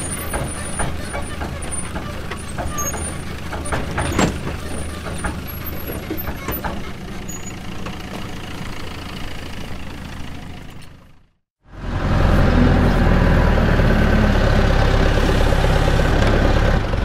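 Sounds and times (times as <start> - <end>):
clicks and knocks: 0.0 - 7.2
heavy vehicle engine running: 0.0 - 17.0
louder engine sound: 11.6 - 17.0.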